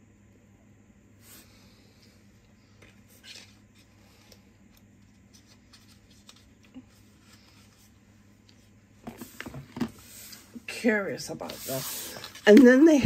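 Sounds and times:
low steady hum: 0:00.0 - 0:13.0
clicks and rustles of packaging: 0:02.8 - 0:07.8.

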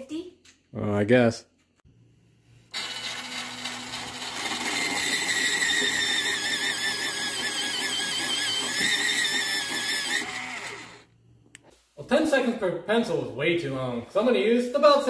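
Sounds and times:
electric pencil sharpener grinding: 0:02.7 - 0:11.1.

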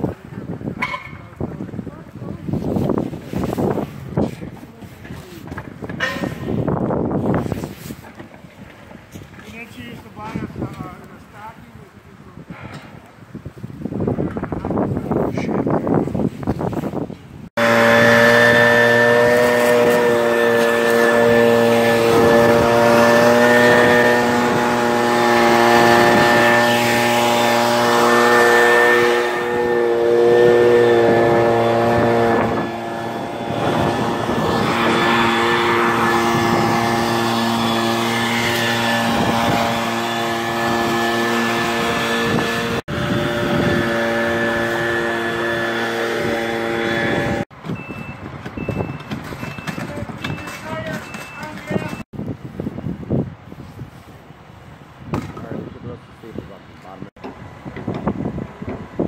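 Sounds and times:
truck engine running: 0:17.6 - 0:52.0.

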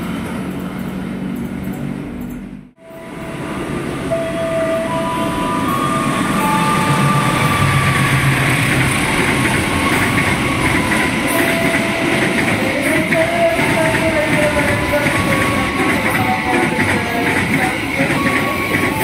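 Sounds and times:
diesel locomotive engine: 0:00.0 - 0:19.0
thin high tones: 0:02.8 - 0:09.0
train wagons clattering on rails: 0:06.8 - 0:19.0.

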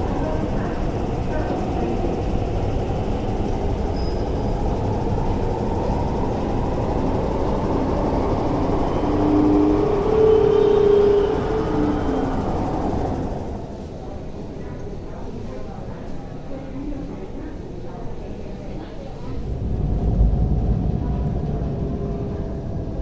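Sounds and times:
train motor whine: 0:00.0 - 0:13.9
train wheels rumbling: 0:00.0 - 0:14.6, 0:19.2 - 0:23.0.

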